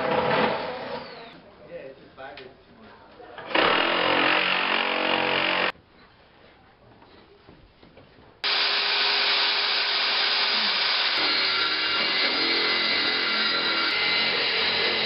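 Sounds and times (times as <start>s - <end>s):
circular saw cutting board: 8.4s - 15.0s.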